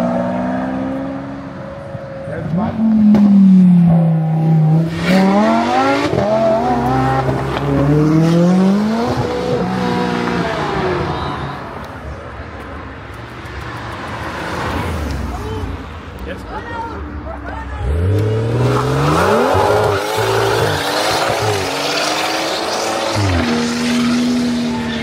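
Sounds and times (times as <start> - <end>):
sports car engines accelerating: 0.0 - 12.0.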